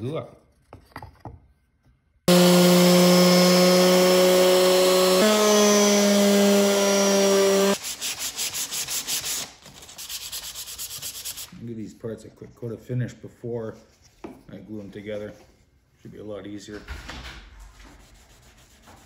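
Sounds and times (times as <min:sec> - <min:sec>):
orbital sander buzzing: 0:02.3 - 0:07.8
hand sanding wood: 0:02.3 - 0:11.5, 0:18.0 - 0:19.0.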